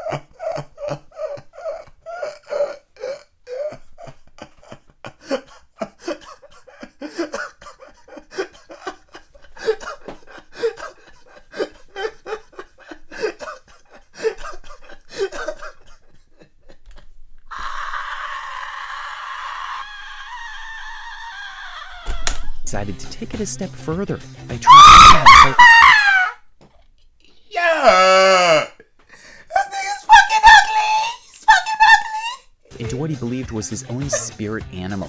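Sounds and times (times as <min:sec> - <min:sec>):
man laughing hard: 0:00.0 - 0:22.4, 0:24.6 - 0:26.4, 0:29.5 - 0:32.4.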